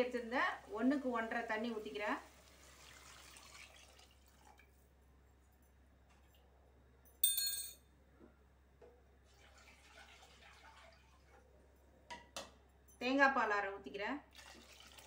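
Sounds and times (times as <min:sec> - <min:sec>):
ringing clink of kitchenware: 0:07.1 - 0:07.8.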